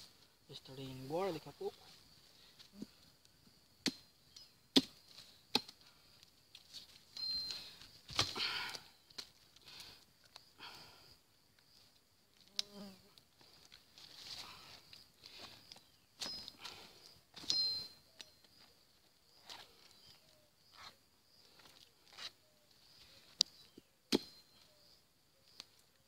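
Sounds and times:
insects buzzing: 0.0 - 26.0
twigs snapping: 8.0 - 10.5.

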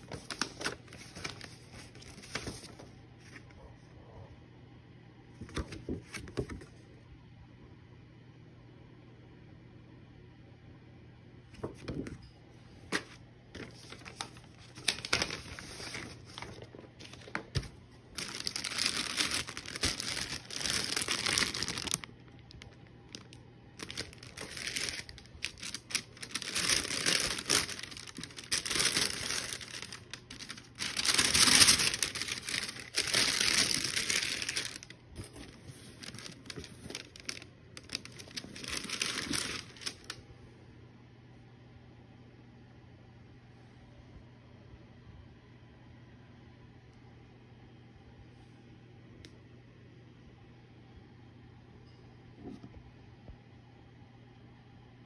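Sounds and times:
paper bags rustling: 0.0 - 3.4, 12.9 - 40.2.

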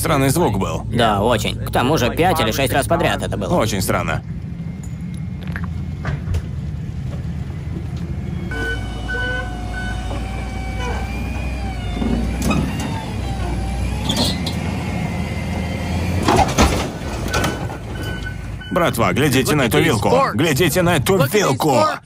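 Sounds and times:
motor vehicle engine rumble: 0.0 - 21.0
whining wavering tones: 1.4 - 16.2.

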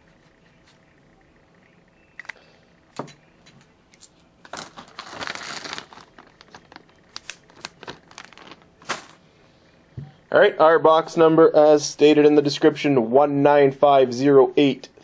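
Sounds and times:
plastic bag crinkling: 4.4 - 9.2.

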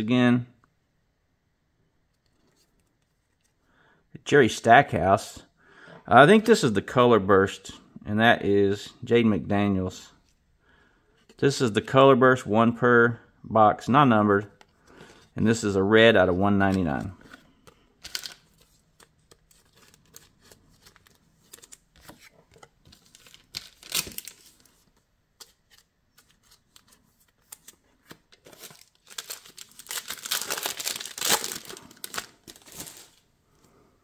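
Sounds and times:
trading cards rustling: 14.4 - 33.3
plastic wrapper crinkling and tearing: 18.0 - 22.3, 22.9 - 24.7, 26.2 - 33.2.

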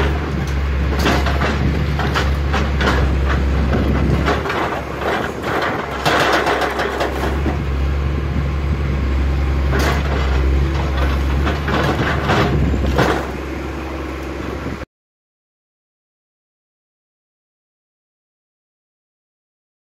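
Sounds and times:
hydraulic breaker hammering rock: 0.0 - 7.7, 9.7 - 13.5
diesel engine running: 0.0 - 14.8.

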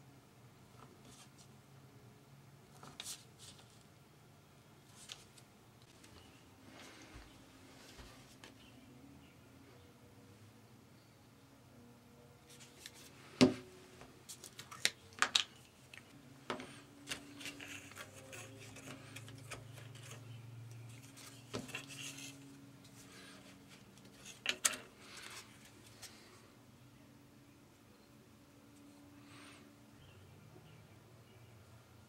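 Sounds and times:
soft rubbing and scraping: 16.5 - 26.3.

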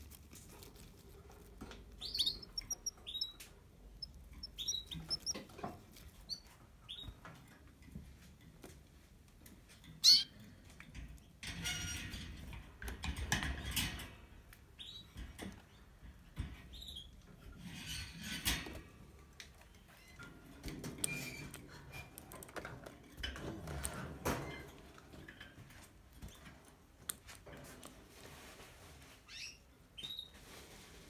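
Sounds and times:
rustling and scratching in cage: 0.0 - 31.0
faint bird chirps: 2.0 - 3.4, 4.0 - 5.4.

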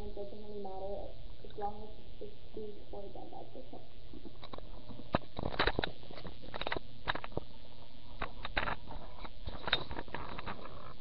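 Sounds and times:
low hum: 0.0 - 11.0
handling clicks and rustles: 4.4 - 7.5, 8.2 - 11.0.

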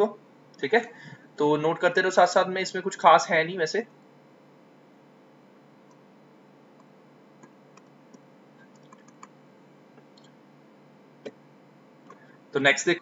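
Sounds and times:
mouse and keyboard clicks: 7.4 - 9.3.

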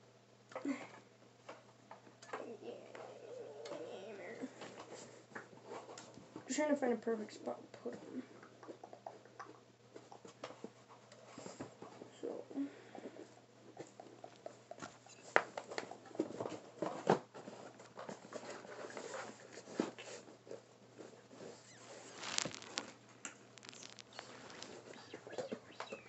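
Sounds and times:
faint steady low hum: 0.0 - 26.0
cardboard box being handled: 21.8 - 23.0.

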